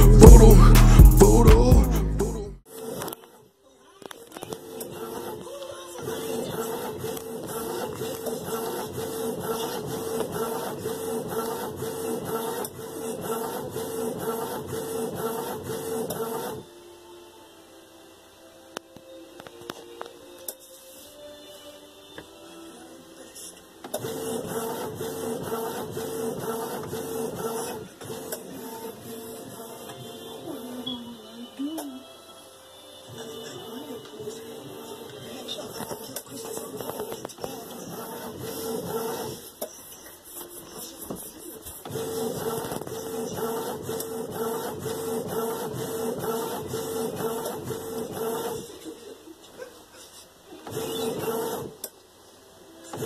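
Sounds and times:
inkjet printer printing: 4.3 - 16.7, 23.4 - 31.9, 33.0 - 49.2, 50.0 - 51.9.

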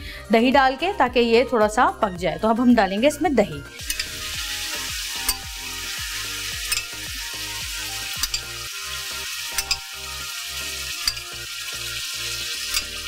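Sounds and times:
chicken frying in oil: 3.8 - 13.0.

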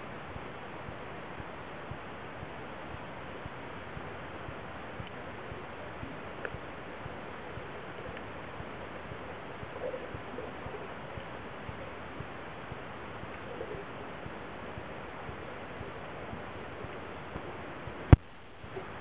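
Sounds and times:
faint water gurgles: 0.0 - 19.0
muffled underwater hiss: 0.0 - 19.0
small clicks: 15.9 - 19.0.

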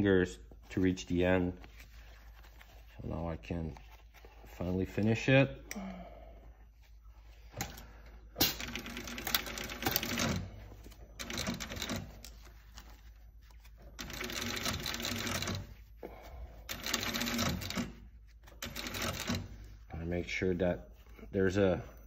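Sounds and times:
industrial sewing machine stitching: 8.4 - 10.5, 14.0 - 15.6, 16.7 - 18.0, 18.6 - 19.5.

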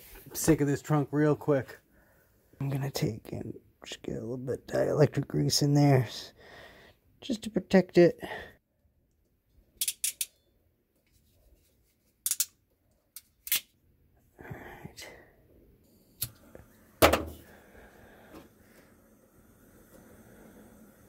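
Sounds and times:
faint steady hiss: 15.8 - 21.0
thud: 17.0 - 17.4.

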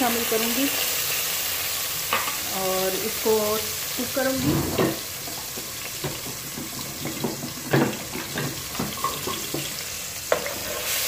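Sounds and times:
paste sizzling in hot oil: 0.0 - 11.0.

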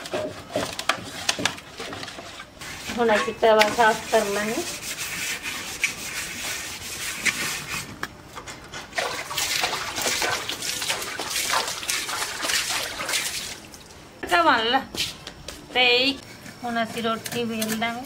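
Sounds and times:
griddle scrubbed with scouring pad: 0.0 - 8.0.

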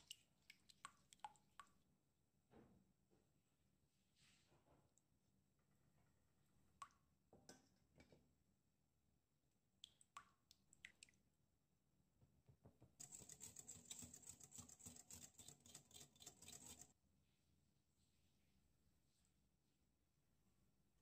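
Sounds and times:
whisk beating in glass bowl: 13.0 - 16.9.

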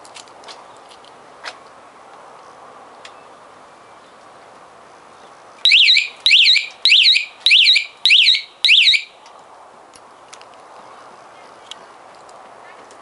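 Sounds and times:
scooter alarm siren warbling: 5.7 - 9.1.

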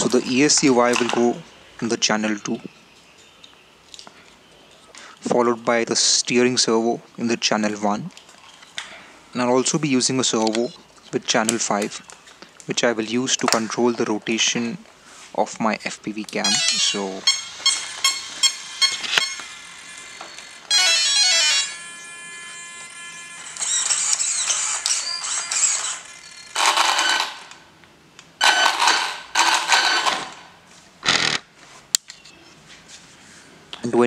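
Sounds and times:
short electronic beeps: 16.4 - 19.5
falling electronic tone: 16.4 - 27.3
bursts of electronic tones: 16.4 - 27.4.

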